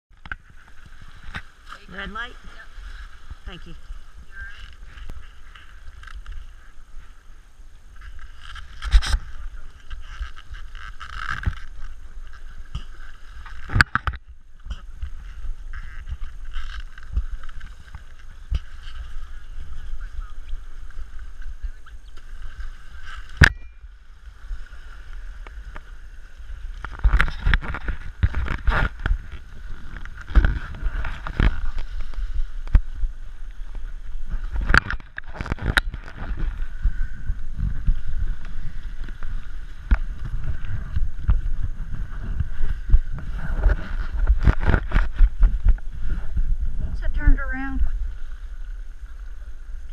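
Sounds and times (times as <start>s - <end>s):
water lapping: 0.4s - 13.8s, 14.6s - 49.9s
muffled rubbing and knocking: 33.7s - 48.0s.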